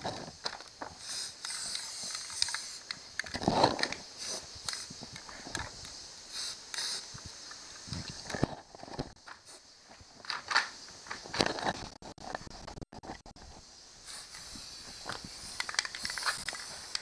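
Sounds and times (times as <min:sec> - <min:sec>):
spray can clicks and knocks: 0:00.4 - 0:08.5, 0:14.1 - 0:17.0
spray can hissing: 0:01.0 - 0:03.2, 0:04.1 - 0:05.2, 0:05.8 - 0:08.1, 0:14.0 - 0:17.0.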